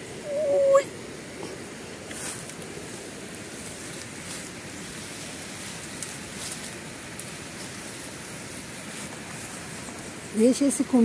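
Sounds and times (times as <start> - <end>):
faint rustles: 0.4 - 10.7.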